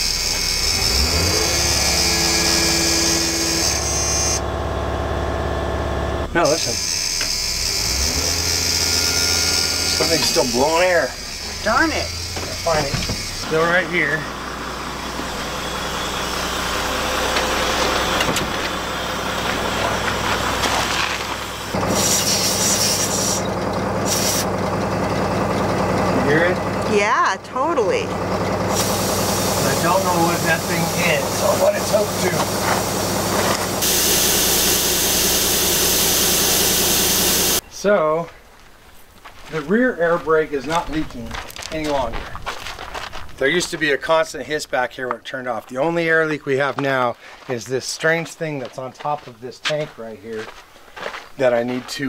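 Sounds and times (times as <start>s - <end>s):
bus engine idling: 0.0s - 37.6s
rising tone: 13.3s - 20.6s
air brake hissing: 21.8s - 24.5s, 28.7s - 31.5s, 32.4s - 37.6s.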